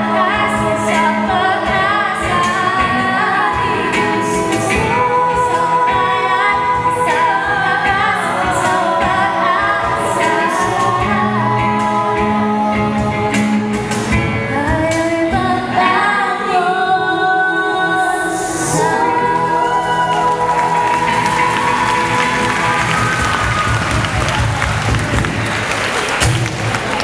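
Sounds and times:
group singing through microphones: 0.0 - 23.8
acoustic guitars: 0.0 - 27.0.

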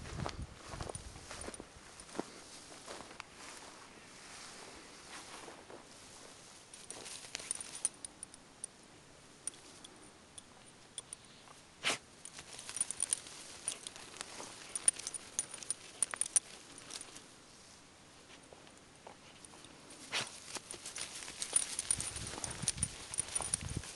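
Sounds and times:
grass rustling: 0.0 - 8.4, 9.4 - 23.9
harness clicks and metallic jingles: 6.7 - 17.3, 18.4 - 23.9.

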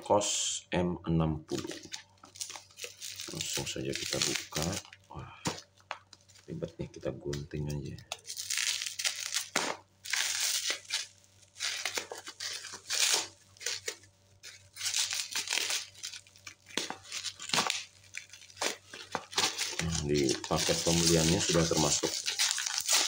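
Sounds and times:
bubble wrap rustling: 1.5 - 23.0
scissors cutting bubble wrap: 1.6 - 4.9, 7.3 - 23.0.

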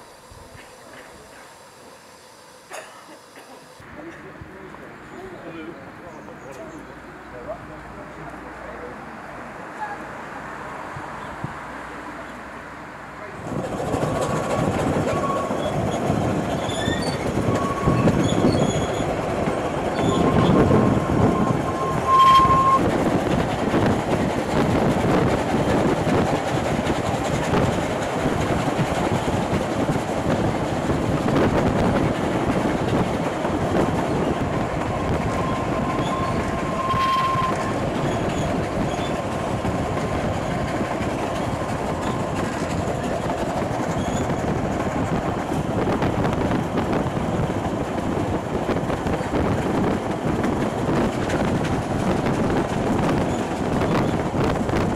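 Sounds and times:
train wheels rumbling and clattering: 13.3 - 54.9
high wheel flange squeal: 14.4 - 19.1, 19.9 - 22.9, 35.3 - 39.2, 43.9 - 44.4.

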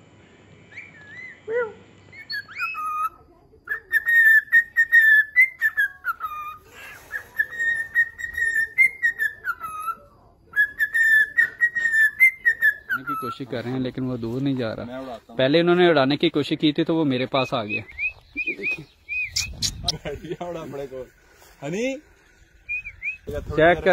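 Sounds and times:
cockatiel whistling a tune: 2.1 - 10.0, 10.6 - 13.4, 22.7 - 23.4.

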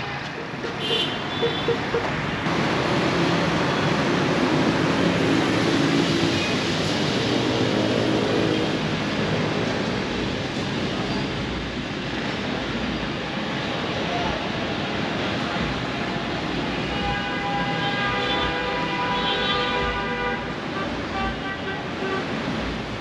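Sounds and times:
steady road noise: 0.0 - 23.0.

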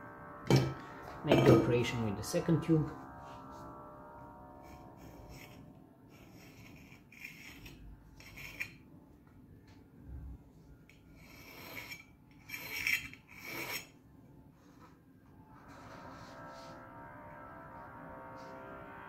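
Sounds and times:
copper pipe scraping cardboard: 6.1 - 8.8.

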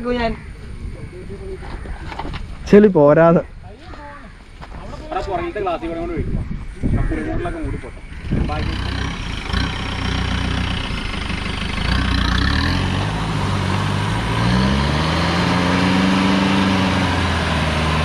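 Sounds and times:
off-road vehicle engine revving: 8.1 - 18.0.

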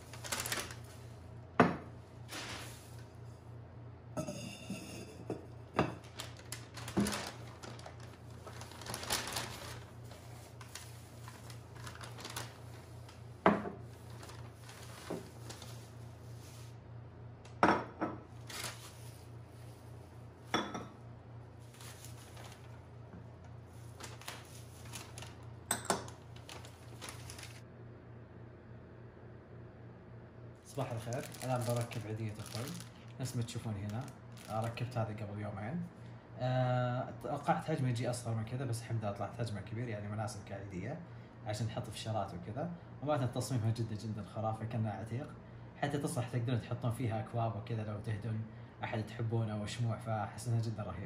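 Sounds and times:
plastic bag rustling: 0.0 - 1.3, 2.2 - 3.1, 5.9 - 16.8, 18.4 - 20.6, 21.5 - 27.6, 30.7 - 35.0
pots and cups set on a table: 4.1 - 6.2, 17.6 - 19.8, 20.4 - 21.1, 24.5 - 27.6.

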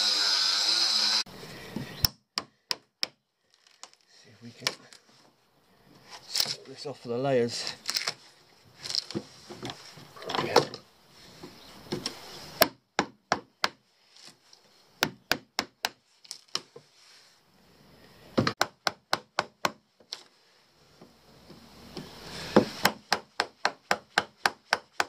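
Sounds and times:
wood scraping and cracking: 3.4 - 5.2, 7.5 - 10.8.

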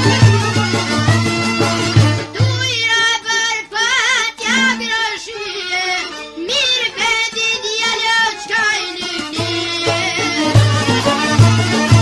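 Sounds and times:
light instrumental accompaniment: 0.0 - 3.0, 5.8 - 12.0
high solo voice singing: 2.3 - 10.6.

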